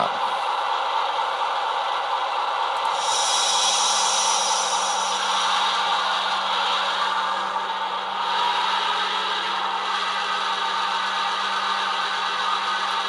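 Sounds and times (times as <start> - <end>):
model locomotive motor whirring: 2.8 - 13.0.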